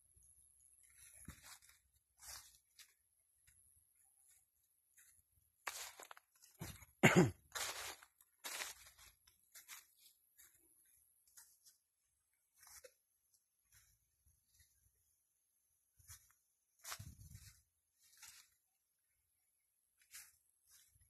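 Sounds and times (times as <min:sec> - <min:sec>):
dry leaves crunching and rustling: 0:01.3 - 0:02.9, 0:05.6 - 0:06.8, 0:07.5 - 0:10.5, 0:16.8 - 0:18.6.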